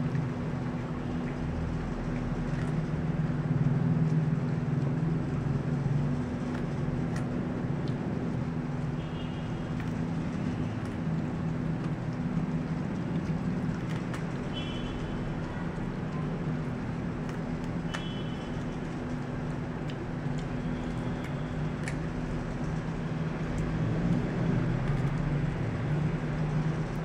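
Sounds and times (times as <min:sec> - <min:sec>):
dog crunching a carrot: 0:02.1 - 0:03.0, 0:09.7 - 0:14.5, 0:15.4 - 0:18.1, 0:19.3 - 0:26.3.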